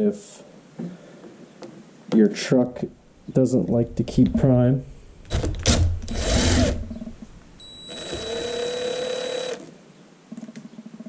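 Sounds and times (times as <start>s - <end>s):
power tool motor whining: 5.3s - 7.0s, 7.6s - 9.7s.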